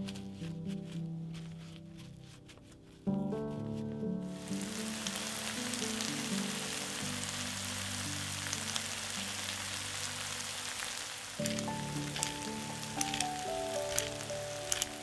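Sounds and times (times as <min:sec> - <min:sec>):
background music: 0:00.0 - 0:15.0
vegetables sizzling in frying pan: 0:04.4 - 0:15.0.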